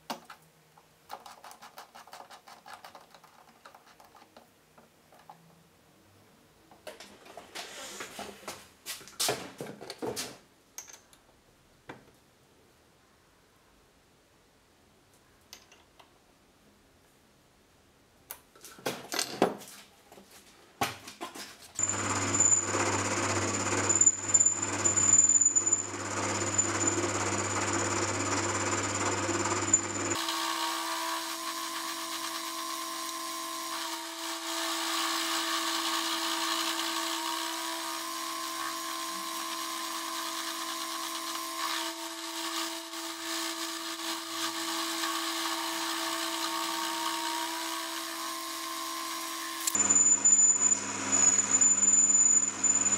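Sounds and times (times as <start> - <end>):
lathe cutting metal: 21.8 - 52.9
lathe running with high whine: 21.8 - 52.9.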